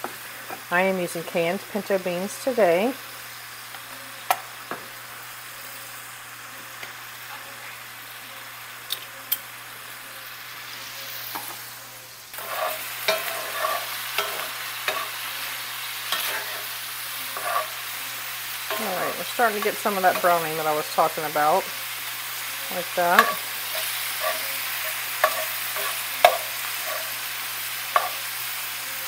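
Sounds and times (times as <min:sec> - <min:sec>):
meat and onions sizzling: 0:00.0 - 0:29.0
spatula scraping skillet: 0:12.3 - 0:29.0.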